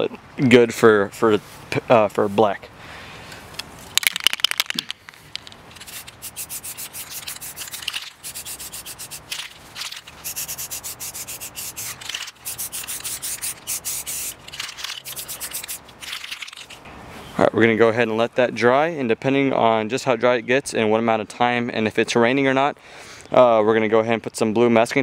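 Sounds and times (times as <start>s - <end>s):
spray can ball rattling: 3.9s - 16.8s
spray paint hissing: 5.7s - 16.8s.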